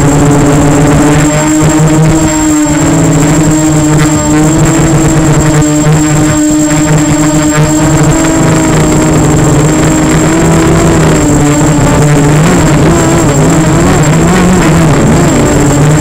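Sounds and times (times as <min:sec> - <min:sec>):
model aircraft motor drone: 0:00.0 - 0:16.0
thin high whine: 0:00.0 - 0:16.0.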